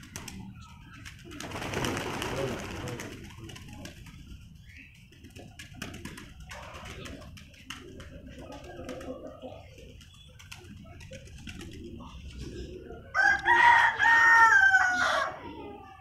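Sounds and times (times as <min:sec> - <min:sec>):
pigeons cooing: 0:00.0 - 0:16.0.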